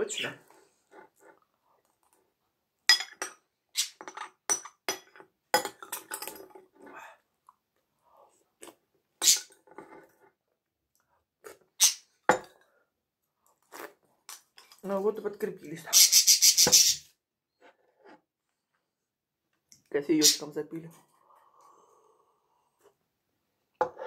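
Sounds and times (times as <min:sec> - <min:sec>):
mouth clicks and slurps: 0:13.5 - 0:14.8.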